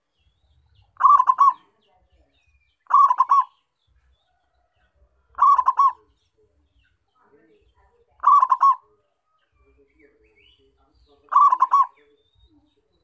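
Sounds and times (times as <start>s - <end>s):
dove cooing: 0.9s - 1.7s, 2.9s - 3.6s, 5.3s - 6.1s, 8.2s - 9.0s, 11.3s - 12.0s.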